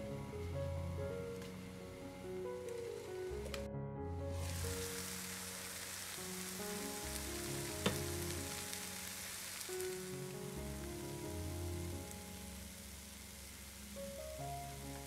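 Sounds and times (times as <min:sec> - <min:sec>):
soft background music: 0:00.0 - 0:15.0
food sizzling in frying pan: 0:04.4 - 0:15.0.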